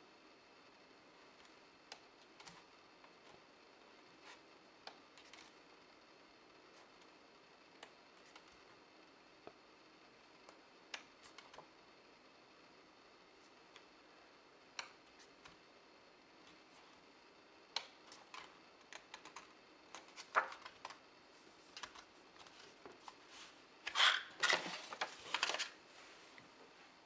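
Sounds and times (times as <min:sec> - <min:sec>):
paper pages rustling: 0:21.7 - 0:25.8.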